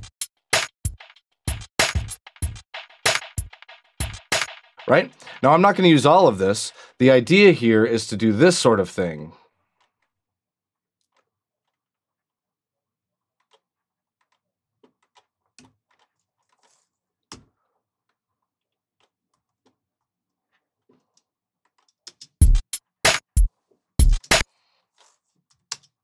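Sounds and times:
hip-hop drum loop: 0.0s - 7.3s, 22.4s - 24.4s
mouse and keyboard clicks: 25.0s - 26.0s.

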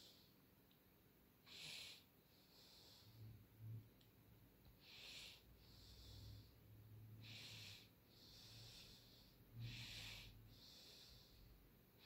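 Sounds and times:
faint low hum: 0.0s - 12.0s
slow breathing: 1.4s - 3.8s, 4.6s - 12.0s.

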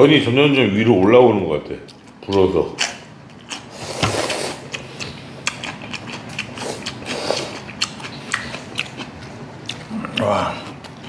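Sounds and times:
wet chewing clicks: 1.8s - 11.0s
noodles being slurped: 3.6s - 4.8s.

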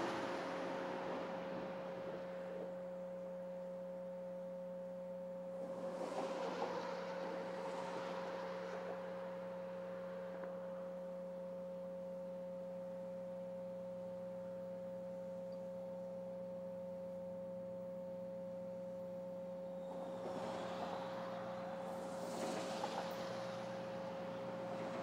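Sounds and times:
train rumble: 0.0s - 3.6s, 5.5s - 10.7s, 19.8s - 25.0s
distant diesel locomotive drone: 0.0s - 15.4s, 16.0s - 25.0s.

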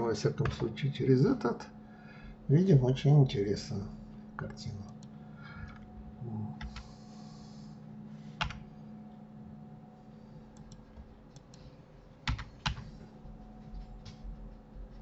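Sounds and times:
faint steady hum: 0.0s - 15.0s
keyboard and mouse clicking: 10.6s - 11.6s, 12.2s - 12.9s.

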